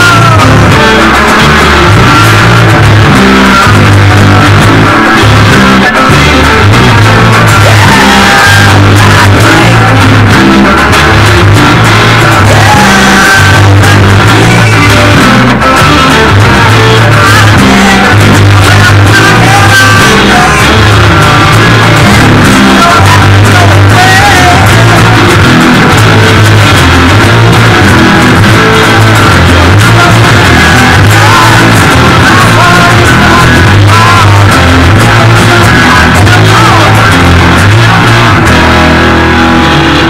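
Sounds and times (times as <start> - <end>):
acoustic guitar: 0.0 - 40.0
drums: 0.0 - 40.0
electric guitar: 0.0 - 40.0.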